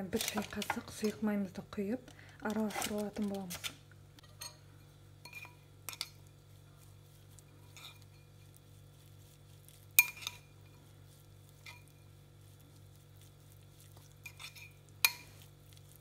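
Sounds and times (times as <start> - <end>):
spoon stirring in bowl: 0.0 - 1.2, 2.4 - 16.0
faint low hum: 0.0 - 16.0
spoon clinking against bowl: 5.2 - 6.2, 10.0 - 10.5.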